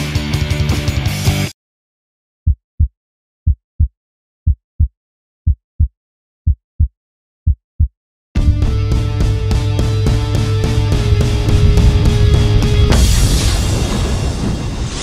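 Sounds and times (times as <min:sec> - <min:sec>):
heartbeat thumps: 0:04.5 - 0:13.0.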